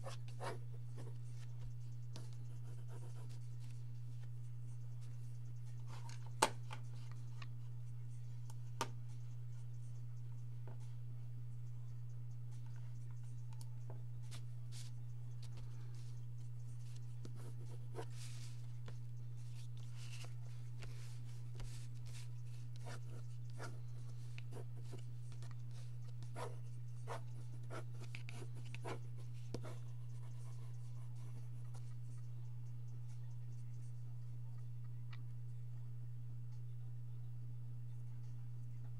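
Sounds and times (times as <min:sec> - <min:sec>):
pencil scratching on paper: 0:00.0 - 0:06.2, 0:15.7 - 0:32.4
steady low hum: 0:00.0 - 0:38.9.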